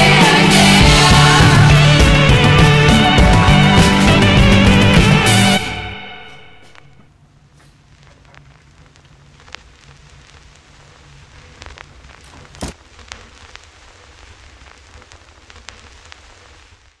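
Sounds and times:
crackles and pops: 6.7 - 17.0.

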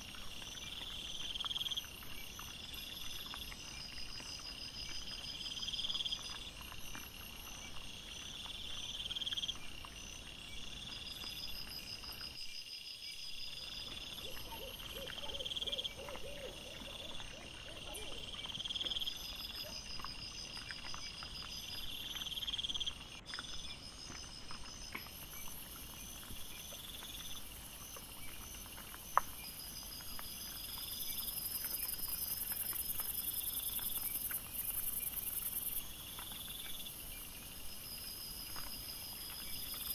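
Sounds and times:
crickets trilling: 0.0 - 39.9.

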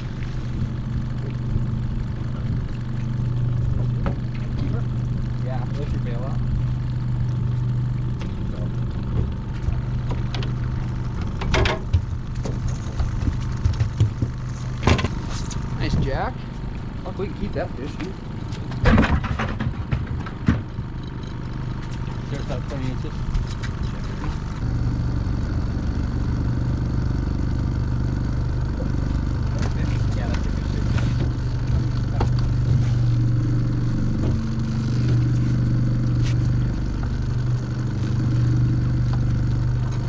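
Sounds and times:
outboard motor humming: 0.0 - 40.0
knocks on boat: 3.7 - 4.8, 11.2 - 15.2, 18.7 - 20.7.

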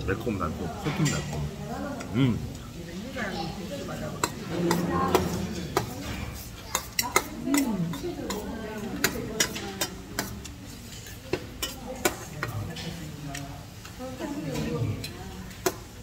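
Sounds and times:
metal chopsticks clicking on dish: 6.7 - 14.0.

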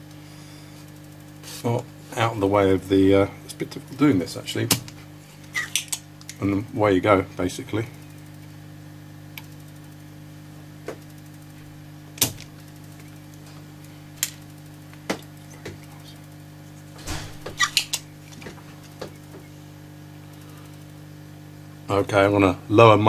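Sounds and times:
solder sucker snapping: 12.2 - 12.5.

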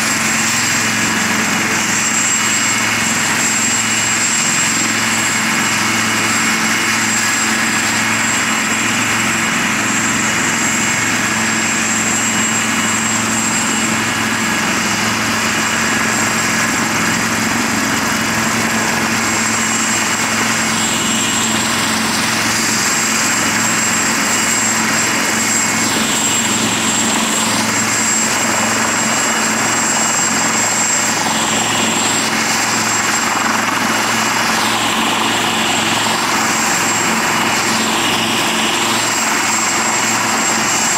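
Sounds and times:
helicopter rotor beat: 0.0 - 40.9
helicopter turbine whine: 0.0 - 40.9.

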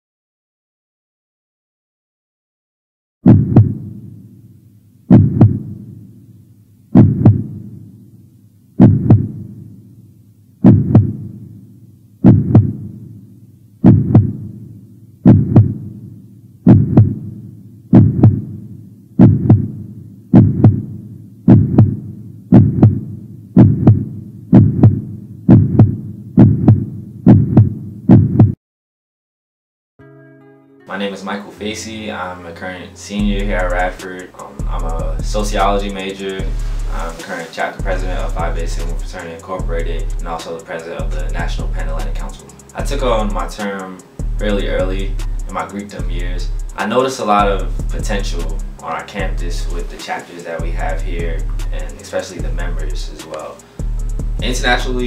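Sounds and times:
deep thuds: 3.2 - 4.0, 5.1 - 5.9, 7.0 - 7.7, 8.8 - 9.6, 10.6 - 11.4, 12.2 - 13.0, 13.8 - 14.6, 15.2 - 16.0, 16.7 - 18.6, 19.2 - 28.6.

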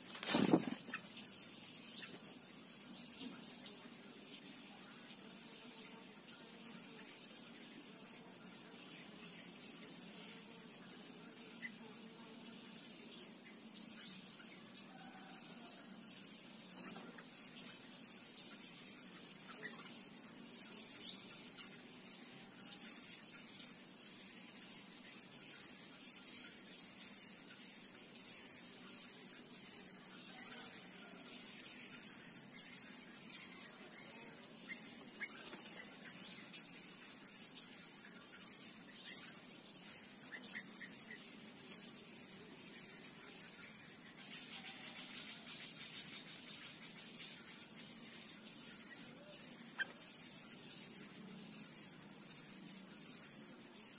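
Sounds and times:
bird chirps: 16.2 - 24.2, 31.8 - 53.9.

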